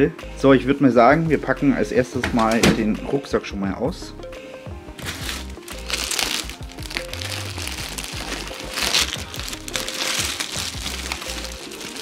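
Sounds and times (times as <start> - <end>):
background music with steady beat: 0.0 - 12.0
plastic bag crinkling: 5.0 - 12.0.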